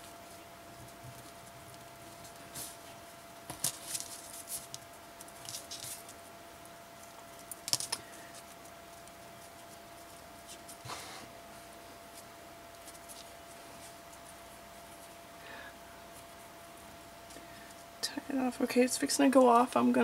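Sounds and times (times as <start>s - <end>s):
hands rustling ribbon: 0.0s - 6.3s.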